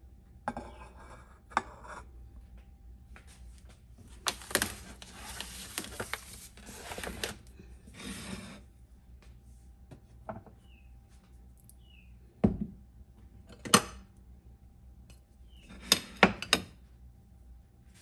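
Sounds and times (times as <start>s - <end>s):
foil baking pan crinkling: 4.0s - 7.5s.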